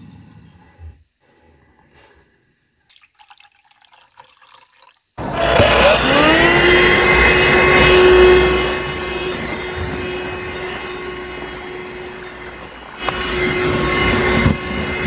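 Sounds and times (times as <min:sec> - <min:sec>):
handheld vacuum cleaner whirring: 0:05.2 - 0:15.0.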